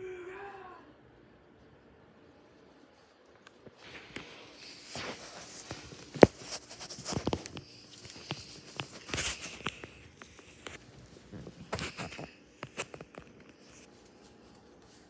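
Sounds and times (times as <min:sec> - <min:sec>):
rustling and scuffing against microphone: 0:03.1 - 0:15.0.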